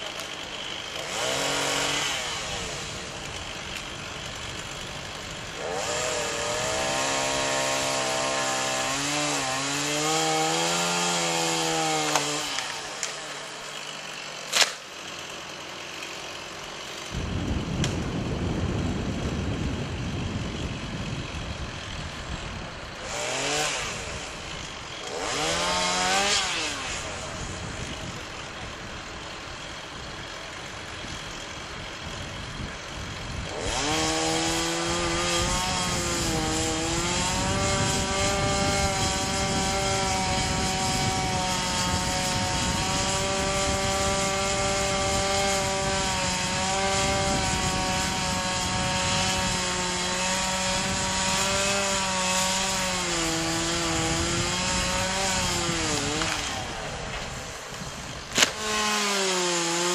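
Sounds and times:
chainsaw revving: 0:00.0 - 0:59.9
sharp crack: 0:12.0 - 0:13.3, 0:14.4 - 0:15.0, 0:55.9 - 0:59.0.

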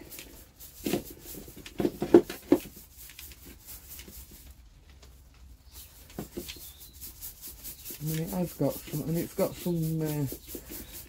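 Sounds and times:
grit rustling through sieve: 0:00.0 - 0:11.0
sieve rattling and knocking: 0:00.8 - 0:02.9.

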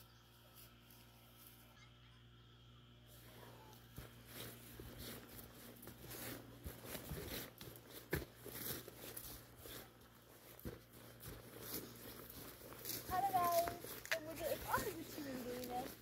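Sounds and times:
grass and twigs rustling: 0:03.0 - 0:16.0
twigs snapping: 0:13.9 - 0:14.3.

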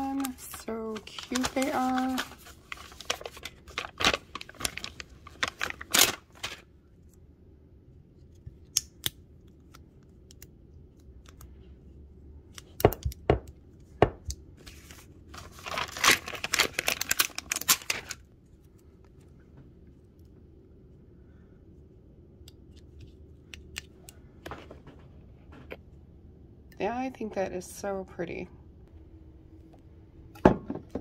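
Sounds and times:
stickers peeling crackly: 0:00.0 - 0:06.6, 0:15.5 - 0:18.3
paper rustling: 0:00.0 - 0:06.7, 0:14.6 - 0:18.2.

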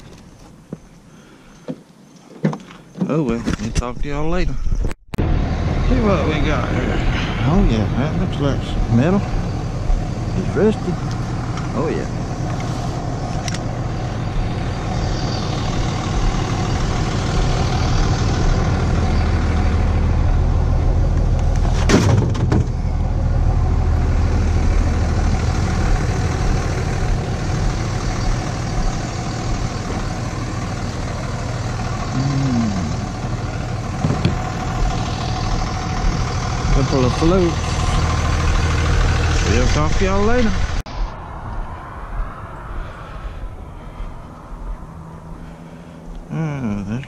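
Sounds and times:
truck engine idling: 0:05.2 - 0:40.9.

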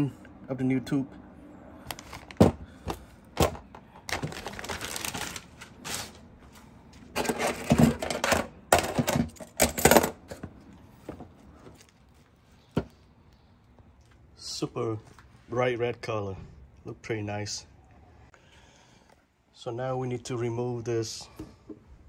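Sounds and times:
packaging crinkling: 0:03.4 - 0:06.4.

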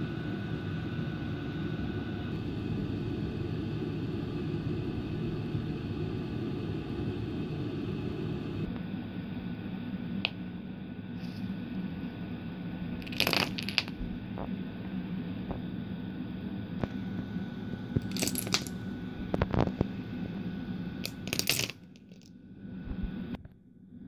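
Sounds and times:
steady low hum: 0:00.0 - 0:24.0
dominoes toppling clicks: 0:13.0 - 0:13.9, 0:18.0 - 0:18.7, 0:21.0 - 0:22.3.

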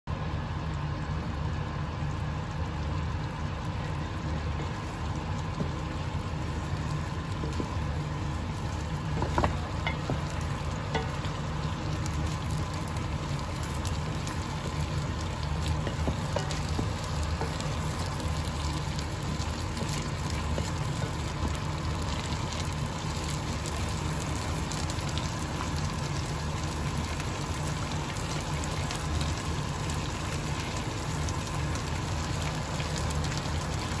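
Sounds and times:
sauce bubbling and sizzling in wok: 0:00.1 - 0:34.0
steady low hum: 0:00.1 - 0:34.0.

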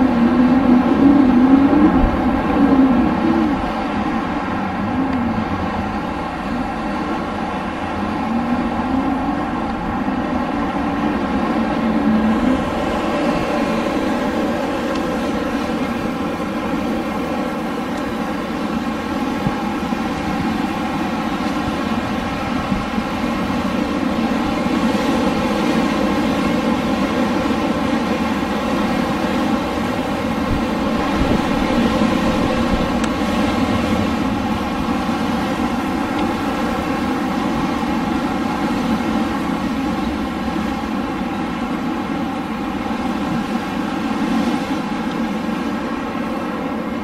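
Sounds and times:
wind blowing: 0:00.0 - 0:47.0.

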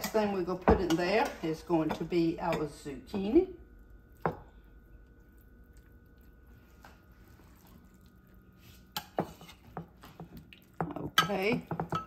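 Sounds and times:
soft wet food sounds: 0:03.1 - 0:11.9.

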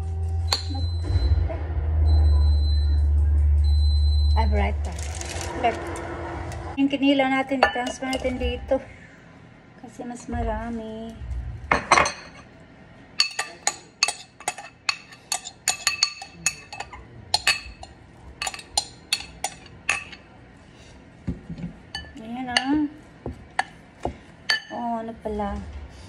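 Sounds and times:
metal spoon clinking on glass bowl: 0:13.2 - 0:20.2.

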